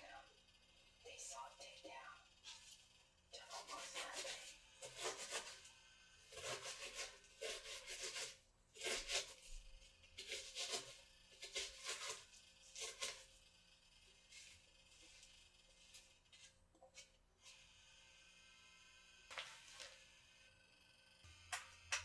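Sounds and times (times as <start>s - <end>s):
chopped onion rustling by hand: 3.6s - 5.7s, 6.3s - 13.3s.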